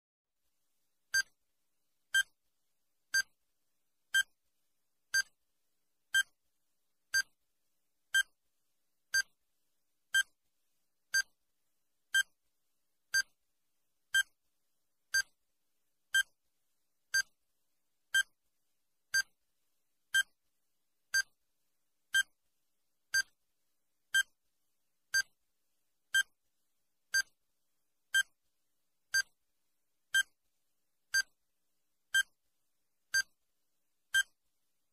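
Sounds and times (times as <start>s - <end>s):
timer ticking click-beeps: 3.1s - 3.3s, 5.1s - 5.3s, 7.1s - 7.3s, 15.1s - 15.3s, 17.1s - 17.3s, 23.1s - 23.3s, 27.1s - 27.3s, 29.1s - 29.3s, 31.1s - 31.3s, 33.1s - 33.3s, 34.1s - 34.3s.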